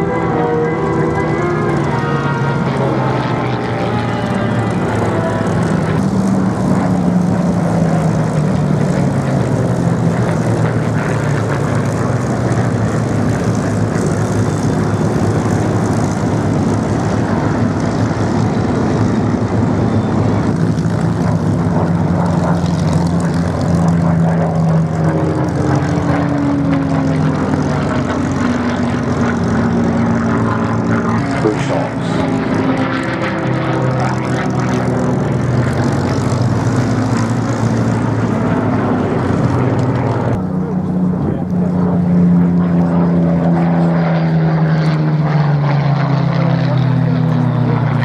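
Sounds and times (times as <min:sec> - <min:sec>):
propeller aircraft flying past: 0:00.0 - 0:48.0.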